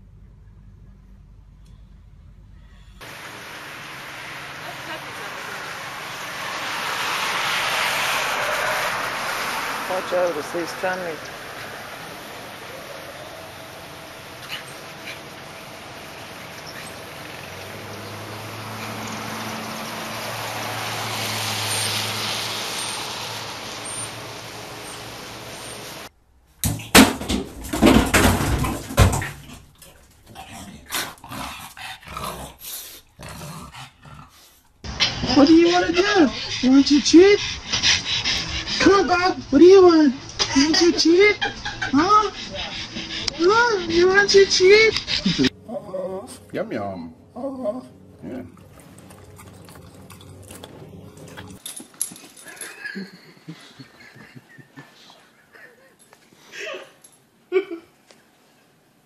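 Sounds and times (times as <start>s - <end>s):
dog growling and barking: 29.2s - 36.6s, 47.4s - 51.6s
dog smacking lips and snuffling: 48.2s - 52.7s.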